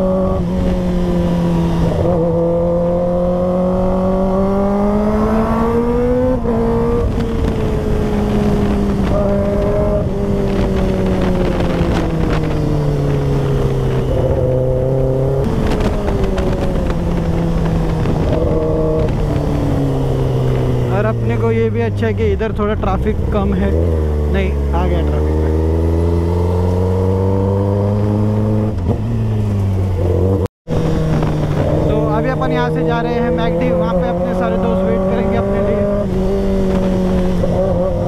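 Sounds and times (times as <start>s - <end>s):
motorcycle engine accelerating: 0.0s - 38.0s.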